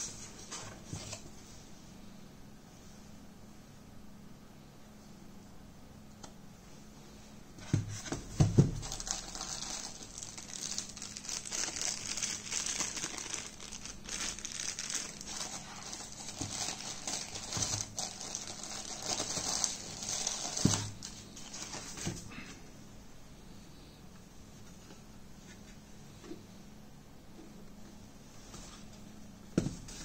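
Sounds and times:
plastic bag crinkling: 8.6s - 22.0s.

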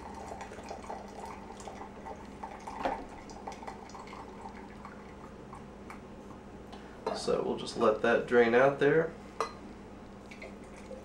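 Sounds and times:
water trickling through filter: 0.0s - 5.4s.

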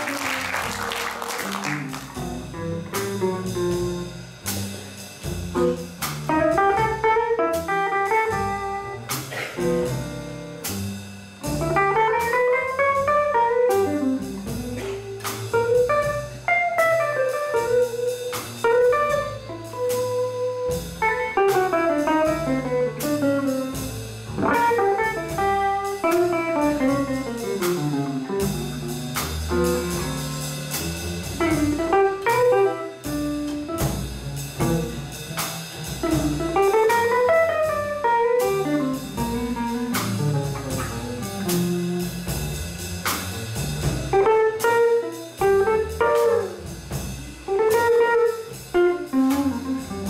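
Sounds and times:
audience applause: 0.0s - 2.4s
bass and drums: 0.0s - 50.0s
jazz guitar solo: 0.0s - 50.0s.

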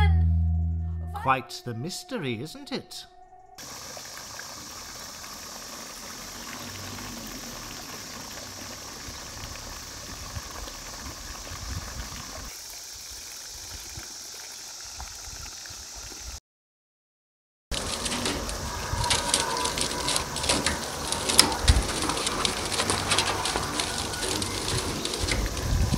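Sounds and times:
low rumble: 0.0s - 1.4s
steady hissing noise: 3.6s - 16.4s.

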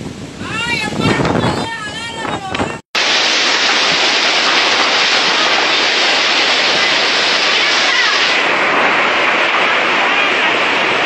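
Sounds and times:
strong wind through trees: 0.0s - 11.0s
driving rain: 2.2s - 11.0s.

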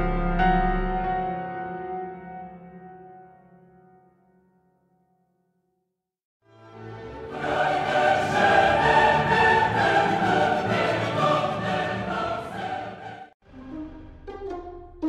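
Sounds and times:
choir singing with orchestra: 6.8s - 13.4s.

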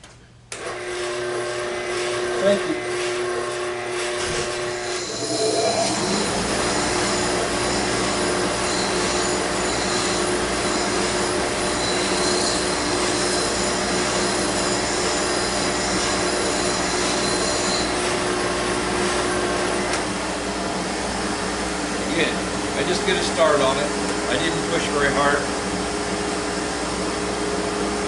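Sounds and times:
sander motor hum: 4.6s - 11.8s.

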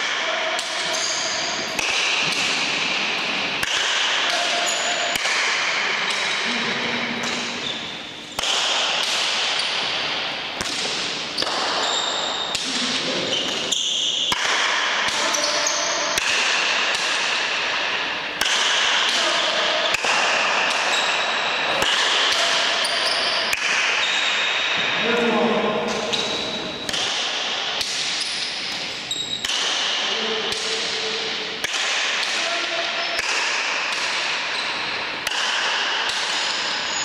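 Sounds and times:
ball cracking off walls and paddles: 0.0s - 6.5s, 7.2s - 24.8s, 25.8s - 30.8s, 31.6s - 37.0s
shoes squeaking on floor: 0.8s - 1.7s, 7.2s - 8.2s, 11.3s - 14.2s, 22.8s - 23.4s, 25.9s - 26.9s, 28.2s - 29.4s.

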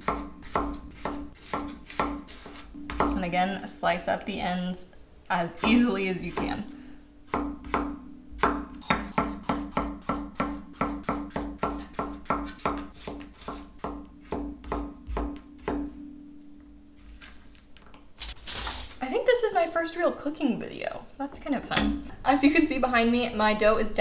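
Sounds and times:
knife chopping on wooden board: 0.0s - 3.2s, 7.3s - 16.0s.

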